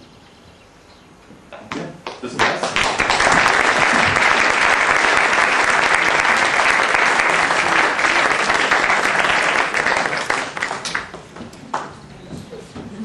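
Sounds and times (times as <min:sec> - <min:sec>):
audience applauding: 0:02.3 - 0:11.9.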